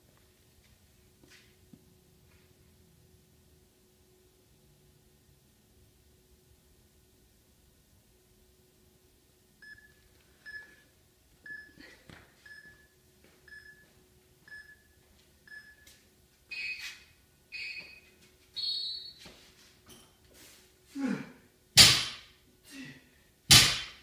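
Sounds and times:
electronic timer beeps: 9.6 - 10.7, 11.5 - 11.8, 13.5 - 13.9, 14.5 - 14.9, 15.5 - 15.9, 16.5 - 19.2.

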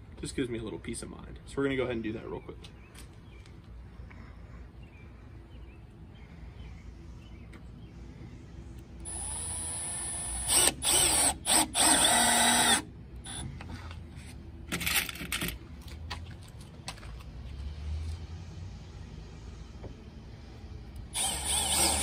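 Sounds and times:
cordless drill driving screws: 9.0 - 13.4, 21.1 - 22.0.

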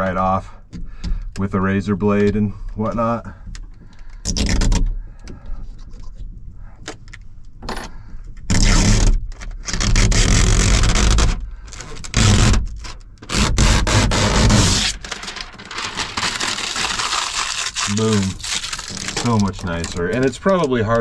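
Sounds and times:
tint film peeling off glass: 8.5 - 21.0.

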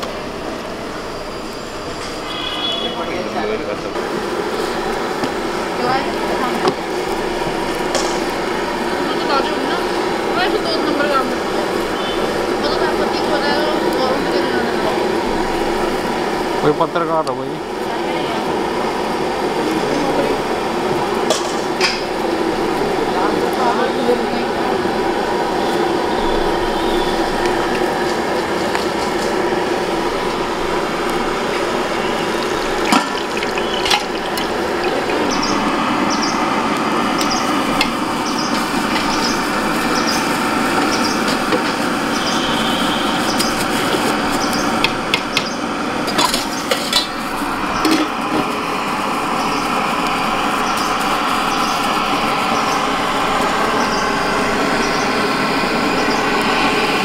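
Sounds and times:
steady hissing noise: 0.0 - 57.0.

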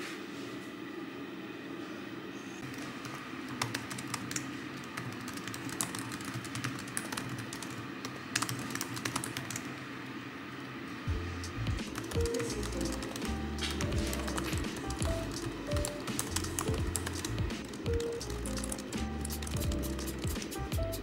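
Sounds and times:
steady low hum: 0.0 - 21.0
laptop keyboard typing: 2.6 - 9.7, 11.8 - 21.0.

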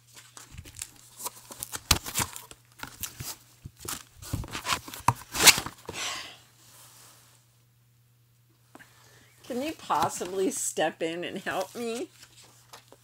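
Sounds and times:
paper rustling and crinkling: 0.0 - 5.8, 11.4 - 13.0.

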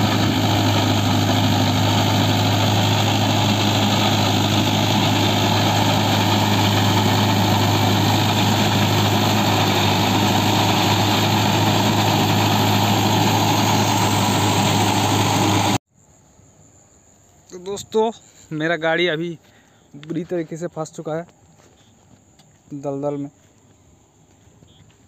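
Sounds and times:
tractor diesel engine running: 0.0 - 15.8.

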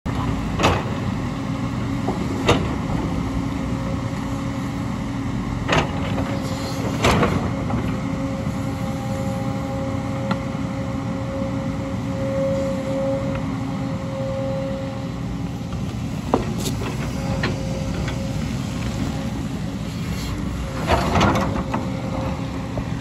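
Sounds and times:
excavator diesel engine running: 0.1 - 23.0
thin steady whine: 8.0 - 23.0.

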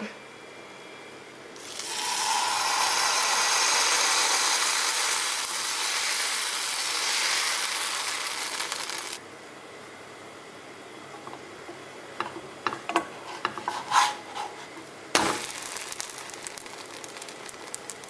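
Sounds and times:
batter sizzling on hot pan: 1.6 - 9.2, 15.2 - 18.0.

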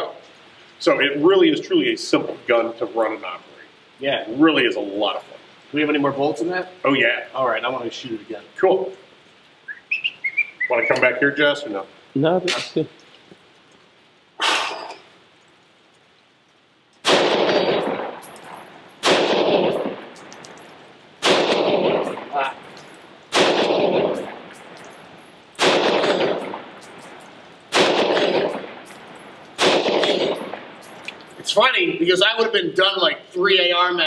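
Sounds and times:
rifle shots echoing: 17.0 - 31.4.

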